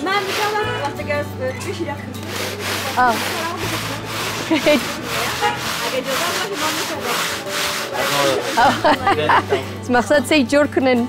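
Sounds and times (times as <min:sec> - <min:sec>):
metal cylinder grinding in ice: 0:02.2 - 0:08.8.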